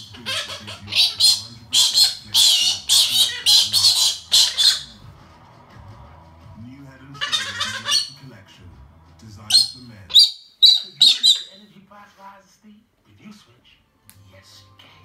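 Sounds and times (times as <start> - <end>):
cockatoo screeching: 0.0 - 5.0, 7.1 - 8.2, 9.5 - 11.6.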